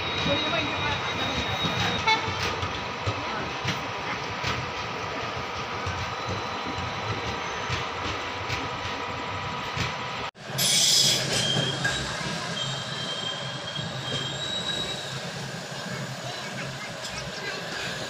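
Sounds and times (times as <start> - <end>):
high wheel squeal: 0.0 - 2.6, 10.6 - 18.0
train rumbling: 0.0 - 18.0.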